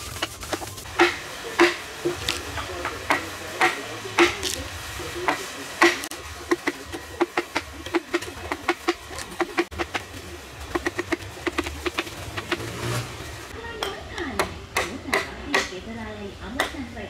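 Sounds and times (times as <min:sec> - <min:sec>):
carving tool chopping wood: 0:00.0 - 0:13.0, 0:13.8 - 0:15.8.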